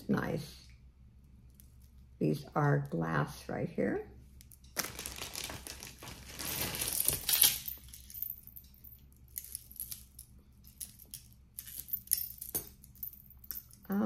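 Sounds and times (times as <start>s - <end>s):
jewelry clinking and jingling: 4.9s - 14.0s.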